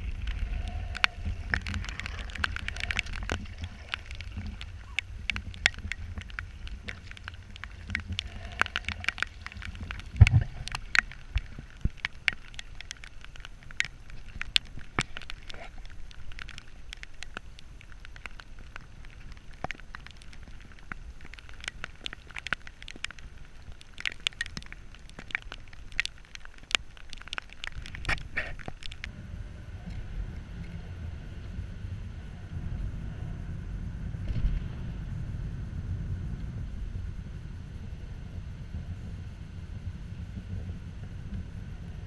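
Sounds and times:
low rumble: 0.0s - 22.2s, 27.9s - 42.0s
water ticking and tapping: 0.0s - 29.2s.

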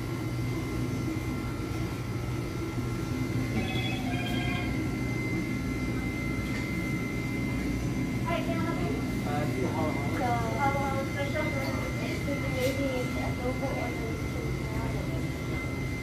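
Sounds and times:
low room hum: 0.0s - 16.0s
short high tones: 3.5s - 4.8s.

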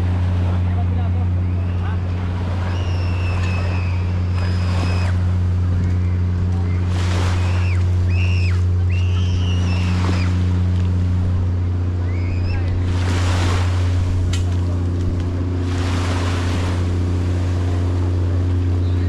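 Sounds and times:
low engine hum: 0.0s - 19.0s
voices: 0.0s - 19.0s
small waves washing on sand: 2.0s - 8.8s, 9.4s - 11.1s, 12.4s - 18.7s.

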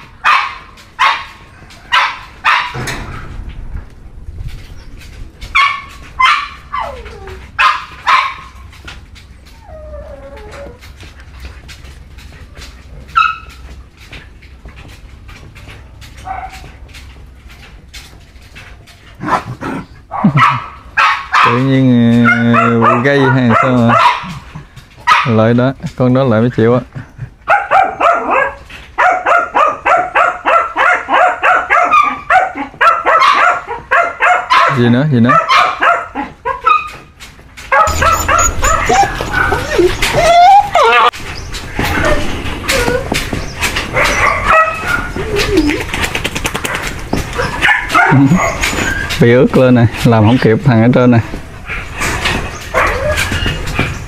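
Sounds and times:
dogs barking and yipping: 0.0s - 3.4s, 4.7s - 25.5s, 27.2s - 54.0s
dog whining: 5.6s - 12.0s, 37.7s - 46.0s, 47.1s - 49.2s, 51.7s - 54.0s.

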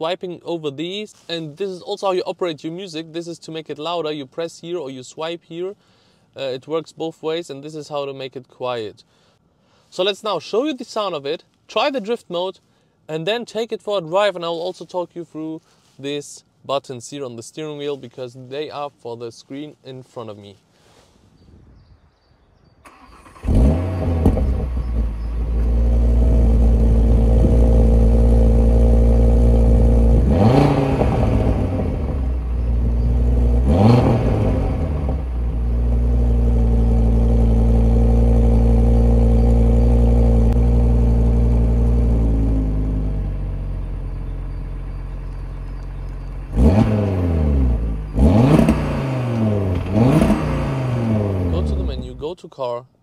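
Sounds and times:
engine rev blips: 22.9s - 52.1s
car engine idling: 23.1s - 52.2s.

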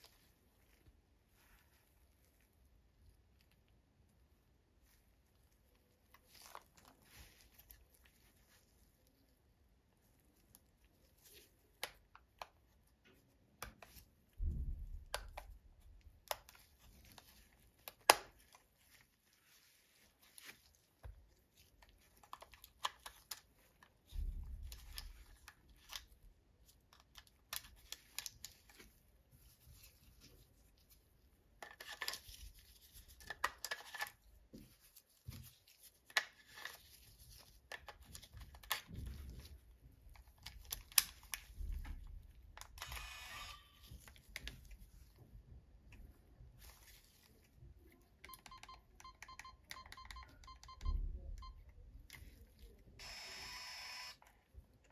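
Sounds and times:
glove rustle: 0.0s - 3.7s, 4.7s - 14.9s, 15.6s - 26.9s, 27.5s - 33.4s, 43.8s - 48.2s.

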